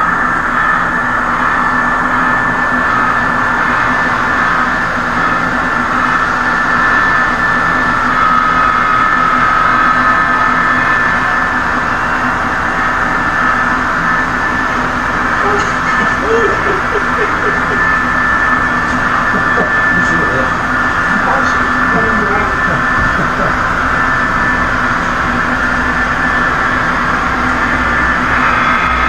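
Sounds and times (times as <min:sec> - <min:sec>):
model trains humming: 0:00.0 - 0:29.0.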